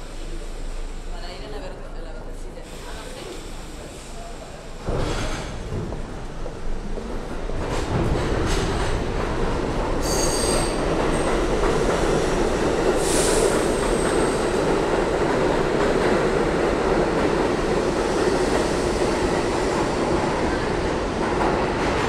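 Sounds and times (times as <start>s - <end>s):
subway train wheels rumbling: 0.0s - 22.0s
high wheel squeal: 10.0s - 10.8s.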